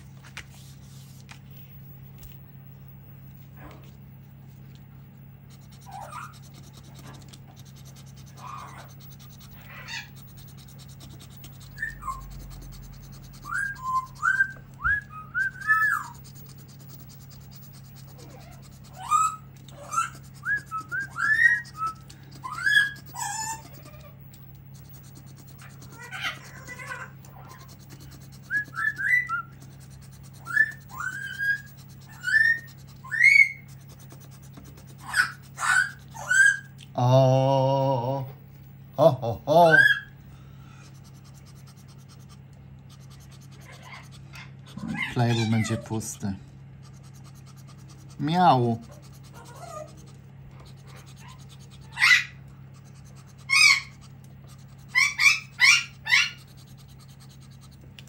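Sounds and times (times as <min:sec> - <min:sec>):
parrot whistling chirps: 0:11.7 - 0:12.4, 0:13.3 - 0:16.2, 0:18.9 - 0:23.7, 0:28.4 - 0:29.6, 0:30.4 - 0:33.7.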